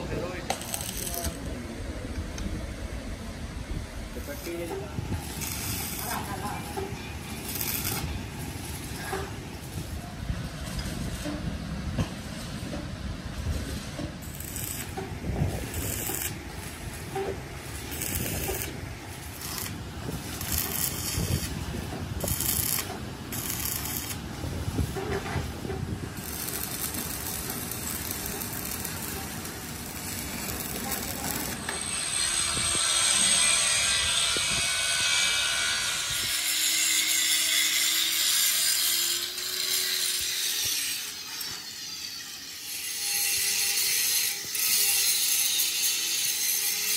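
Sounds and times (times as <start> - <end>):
high hissing grinding whine: 13.6 - 37.8.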